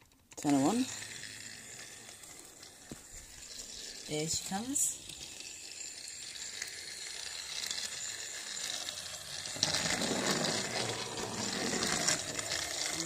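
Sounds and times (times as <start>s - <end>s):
toy train click: 0.0s - 13.0s
toy train motor whirring: 0.0s - 13.0s
toy train wheels rattling: 0.0s - 13.0s.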